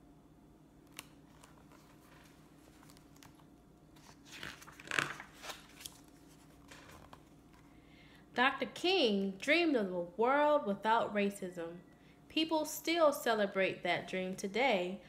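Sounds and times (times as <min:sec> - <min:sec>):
paper page rustling: 0:00.9 - 0:07.7.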